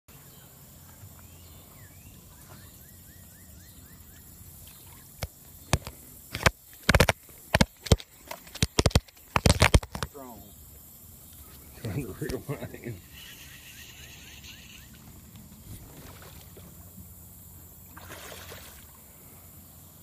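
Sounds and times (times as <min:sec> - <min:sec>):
faint bird chirps: 0:00.1 - 0:05.8, 0:12.8 - 0:15.1
river ambience: 0:00.1 - 0:20.0.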